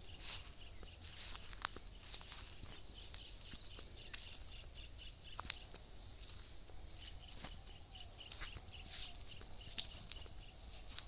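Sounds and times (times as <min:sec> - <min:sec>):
footsteps on brick paving: 0:00.0 - 0:11.0
high chirping call: 0:02.0 - 0:11.0.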